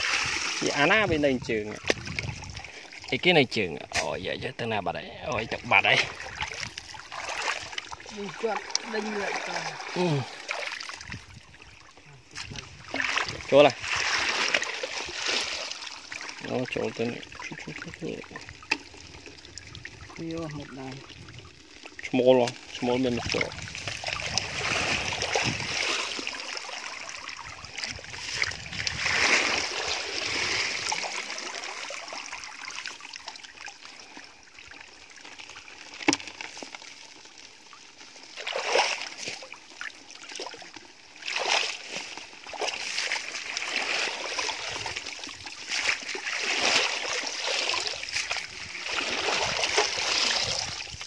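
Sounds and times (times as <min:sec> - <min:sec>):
water splashing: 0:00.0 - 0:51.0
hands squelching in wet mud: 0:05.8 - 0:11.1, 0:12.3 - 0:16.6, 0:40.3 - 0:51.0.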